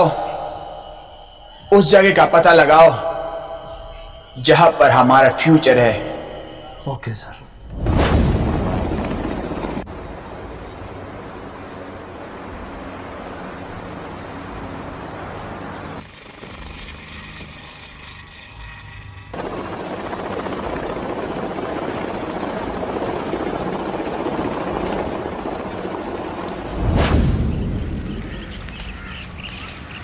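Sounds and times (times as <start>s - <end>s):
helicopter rotor and engine: 8.3s - 26.8s.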